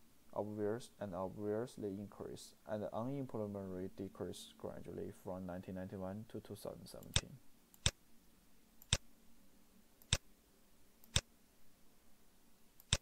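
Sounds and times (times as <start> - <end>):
faint low hum: 0.0 - 13.0
computer mouse clicks: 8.8 - 9.1, 10.0 - 10.2, 11.0 - 11.3, 12.8 - 13.0.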